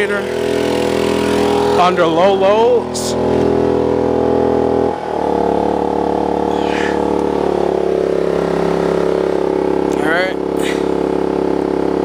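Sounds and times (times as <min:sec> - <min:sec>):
generator engine running high: 0:00.0 - 0:12.0.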